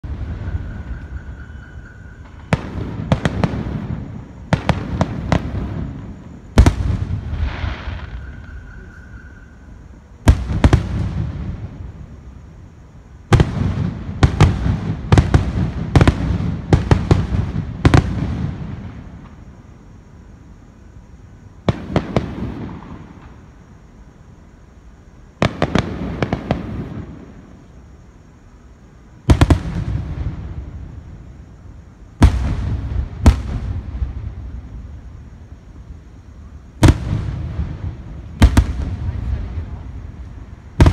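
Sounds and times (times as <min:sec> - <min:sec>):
fireworks bangs: 0:00.0 - 0:12.4, 0:13.2 - 0:19.6, 0:21.6 - 0:23.7, 0:25.4 - 0:27.7, 0:29.2 - 0:40.9.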